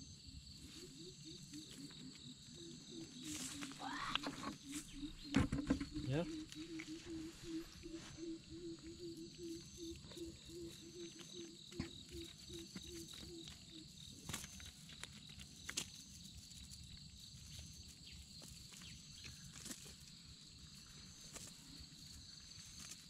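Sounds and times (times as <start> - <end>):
frogs pulsing call: 0.0 - 16.0
insects trilling: 0.0 - 23.0.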